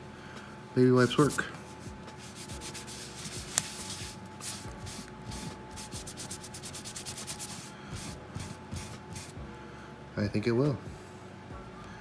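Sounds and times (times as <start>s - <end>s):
wipe rubbing over leatherette: 1.1s - 9.4s.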